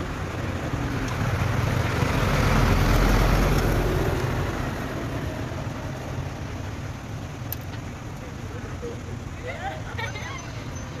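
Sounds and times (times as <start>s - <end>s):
vehicle passing by: 0.0s - 7.4s.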